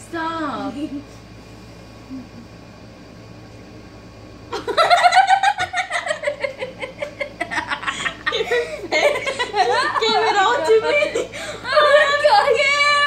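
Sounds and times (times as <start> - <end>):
girls giggling: 4.5 - 12.4.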